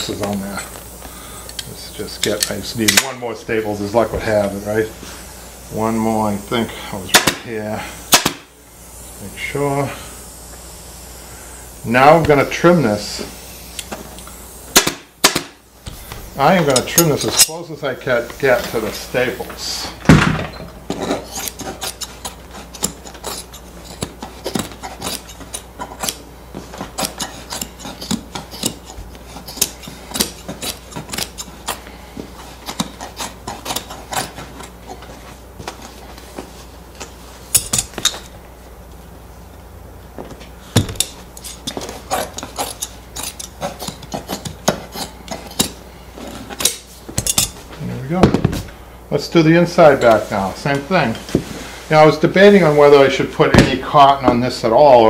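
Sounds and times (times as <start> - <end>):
fabric shears snipping: 8.1 - 8.5, 13.7 - 15.6, 20.8 - 38.3, 40.7 - 47.7.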